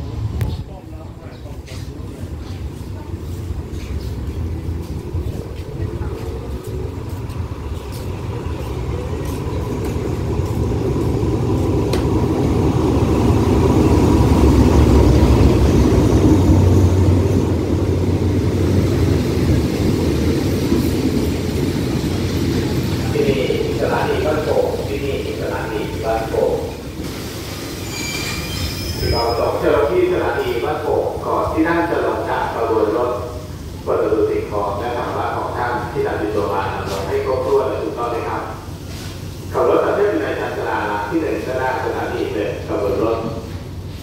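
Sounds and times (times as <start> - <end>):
diesel locomotive engine rumble: 0.0 - 44.0
train wheels rolling: 1.6 - 31.6.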